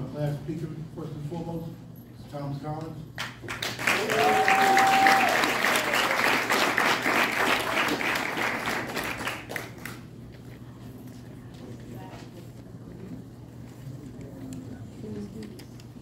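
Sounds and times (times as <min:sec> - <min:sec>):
audience applauding: 0:03.2 - 0:10.0
long held cheer: 0:03.8 - 0:08.3.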